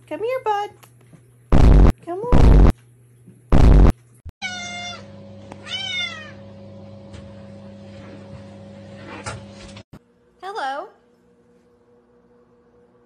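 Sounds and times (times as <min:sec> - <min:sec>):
steady low hum: 0:01.4 - 0:04.1
cat meowing: 0:04.4 - 0:06.4.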